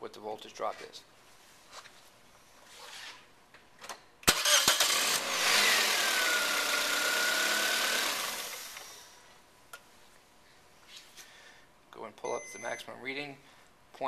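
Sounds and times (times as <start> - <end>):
starter motor cranking engine: 4.2 - 9.0.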